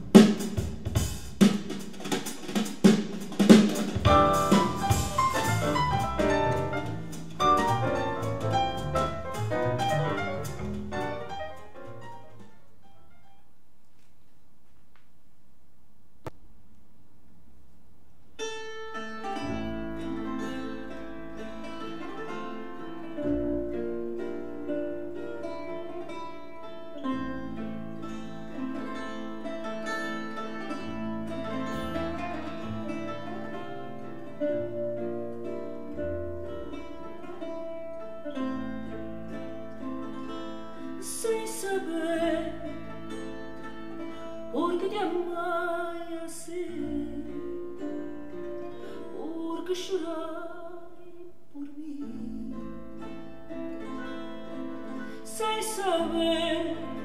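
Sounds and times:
plucked strings music: 0:03.2 - 0:13.4, 0:18.4 - 0:57.0
person singing: 0:41.0 - 0:43.0, 0:44.5 - 0:47.8, 0:48.8 - 0:53.2, 0:55.1 - 0:57.0.

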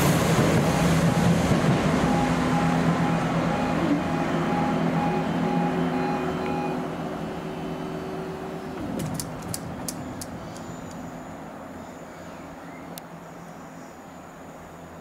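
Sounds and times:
level crossing alarm pulsing tone: 0:02.0 - 0:07.7
sharp clicks: 0:09.0 - 0:11.0.

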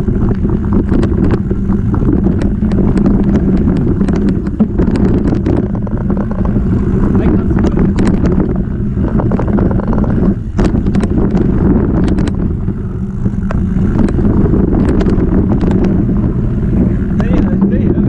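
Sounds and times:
bike and stones clicking and rattling: 0:00.0 - 0:18.0
bike tyre rumbling on gravel: 0:00.0 - 0:18.0
wind on microphone: 0:00.0 - 0:18.0.

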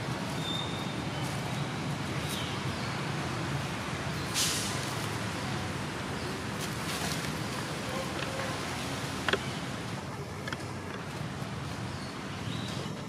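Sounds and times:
sharp hiss: 0:04.2 - 0:05.0.

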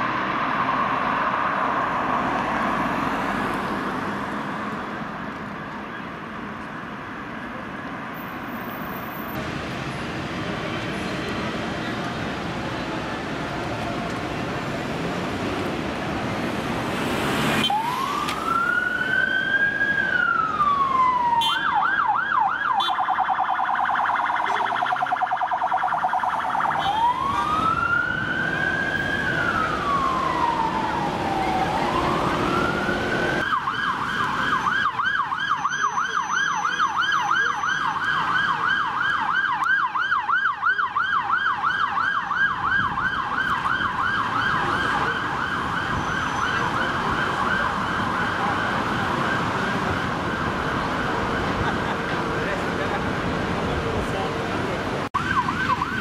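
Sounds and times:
road traffic: 0:00.0 - 0:56.0
police siren wailing: 0:16.8 - 0:53.4, 0:55.0 - 0:56.0
police siren yelping: 0:17.6 - 0:52.4, 0:55.1 - 0:56.0.

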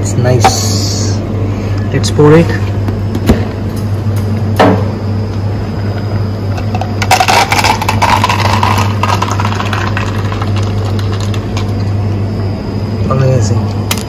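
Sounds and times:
steady low hum: 0:00.0 - 0:14.0
ice cubes clattering: 0:07.0 - 0:11.4
liquid pouring into a cup: 0:07.1 - 0:11.8.

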